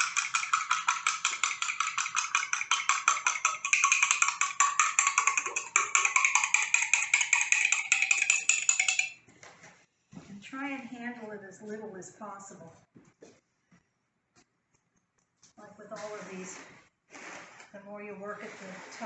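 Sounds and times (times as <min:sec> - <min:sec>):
fork clicking on glass jar: 0:00.0 - 0:09.2.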